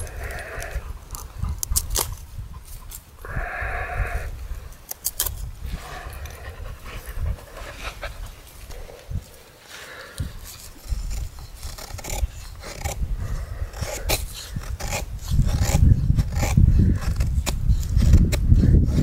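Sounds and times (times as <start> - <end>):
knife scraping wooden stick: 10.4 - 13.0, 13.7 - 19.0.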